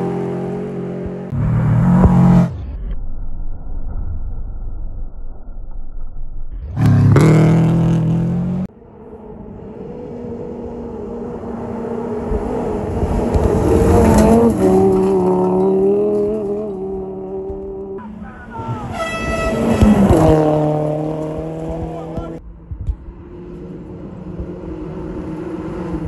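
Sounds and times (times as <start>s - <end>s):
rally car engine passing: 6.7s - 26.0s
second rally car passing: 9.5s - 22.4s.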